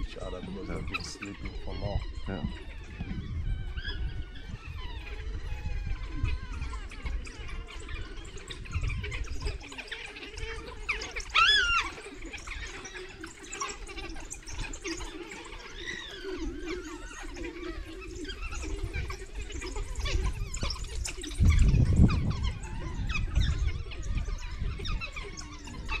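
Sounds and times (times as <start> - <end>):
wild dogs chirping and squeaking: 0.0 - 26.0.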